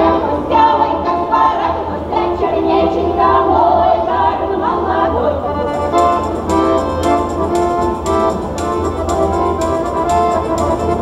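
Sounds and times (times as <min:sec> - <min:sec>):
women's choir singing: 0:00.0 - 0:06.7
accordion: 0:00.0 - 0:11.0
tambourine struck on the beat: 0:05.8 - 0:11.0.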